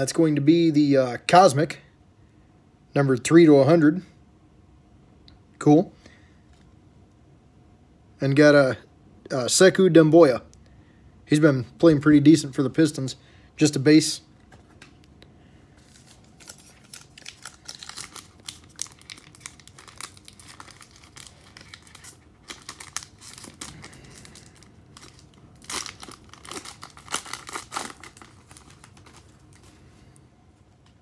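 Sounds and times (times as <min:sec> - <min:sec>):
foil wrapper crinkling and tearing: 0:15.8 - 0:29.8.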